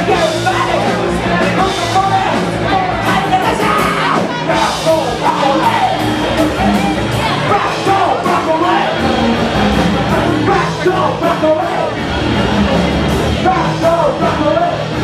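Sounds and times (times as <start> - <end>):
person singing: 0.0 - 9.1
live rock band playing: 0.0 - 15.0.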